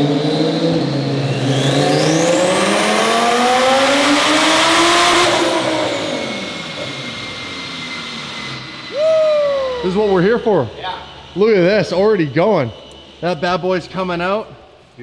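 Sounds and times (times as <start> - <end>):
car engine revving: 0.0 - 9.0.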